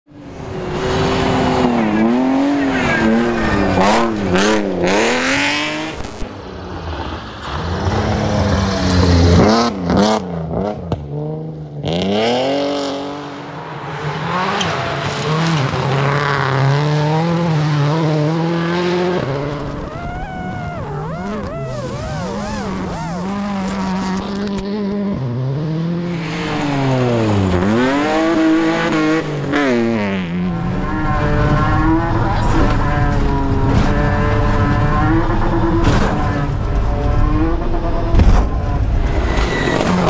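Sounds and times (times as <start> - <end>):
rally car engines revving: 0.1 - 40.0.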